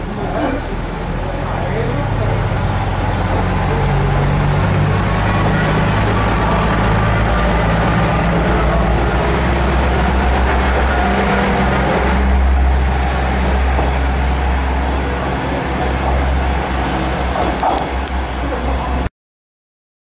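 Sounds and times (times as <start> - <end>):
diesel train engine drone: 0.0 - 19.1.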